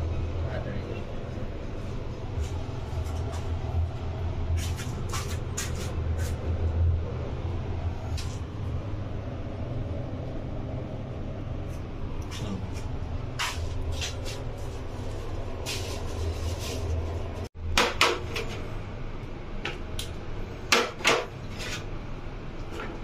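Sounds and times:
low background rumble: 0.0s - 17.8s.

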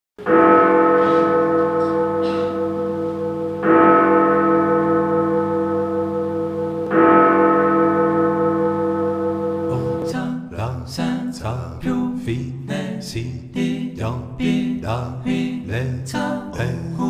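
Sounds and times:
deep bell-like chord ringing: 0.2s - 10.3s.

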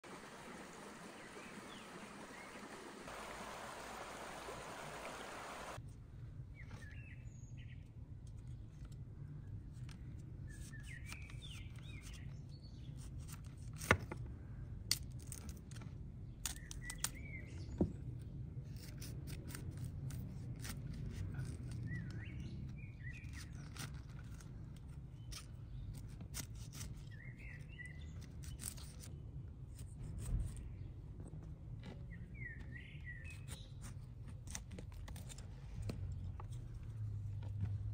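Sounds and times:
water running in stream: 0.0s - 5.8s
birds chirping: 0.1s - 5.8s.

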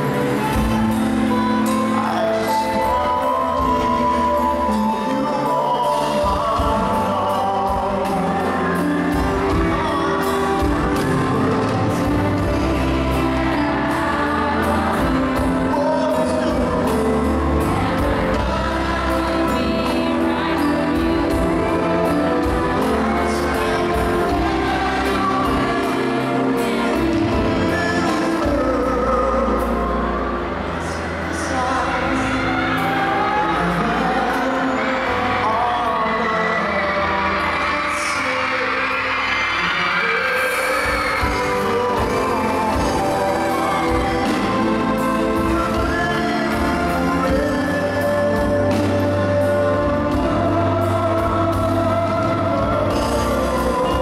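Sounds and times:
woman singing: 0.0s - 29.4s, 40.0s - 54.0s
band accompaniment: 0.0s - 54.0s
man singing: 0.0s - 54.0s.

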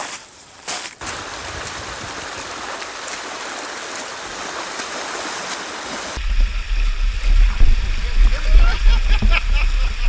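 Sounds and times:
creek rushing over stones: 0.0s - 6.2s
low rumble: 6.2s - 10.0s.

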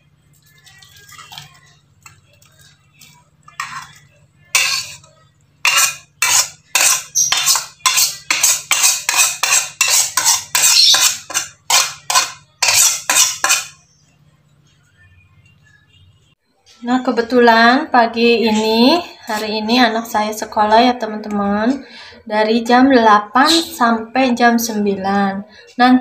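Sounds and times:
metal spatula scraping wok: 2.5s - 13.8s.

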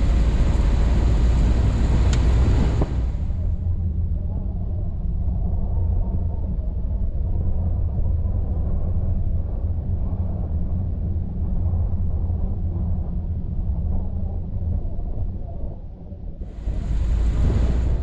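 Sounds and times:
car engine and road noise: 0.0s - 4.1s, 16.4s - 18.0s.

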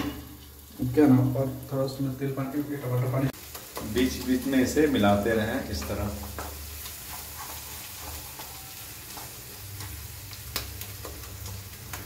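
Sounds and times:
masala sizzling in oil: 0.0s - 12.0s
spatula scraping a pan: 5.8s - 10.0s.

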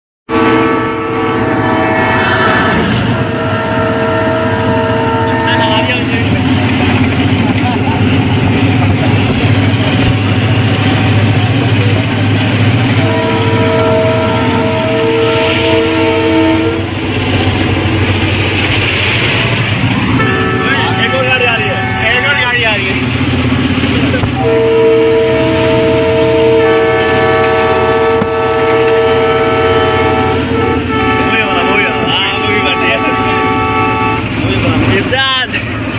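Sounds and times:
locomotive horn: 0.3s - 6.4s, 12.7s - 17.0s, 20.1s - 22.6s, 24.4s - 34.5s
diesel locomotive drone: 0.3s - 35.9s
train rumbling at speed: 0.3s - 35.9s.

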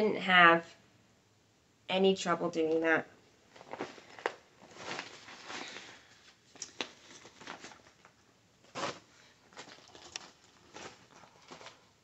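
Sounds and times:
fabric rustling: 3.4s - 12.0s.

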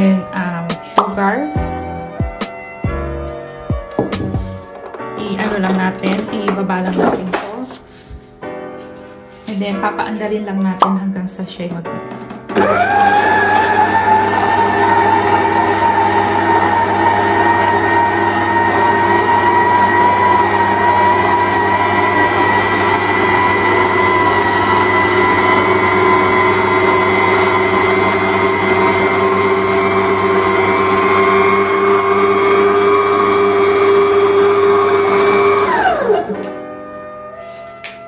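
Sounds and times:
stand mixer motor whining: 12.5s - 37.4s.

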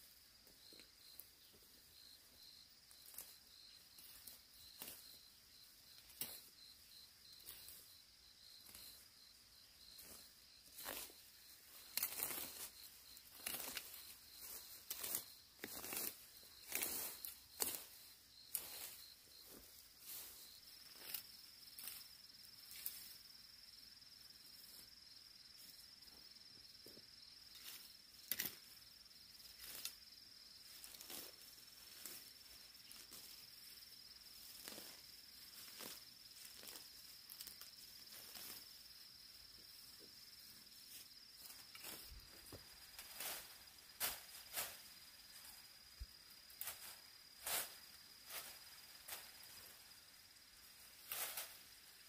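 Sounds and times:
insect trill: 0.0s - 52.0s
dry weeds rustling and crackling: 7.2s - 23.1s, 30.6s - 33.7s, 34.4s - 38.8s, 40.8s - 50.0s, 50.6s - 52.0s.

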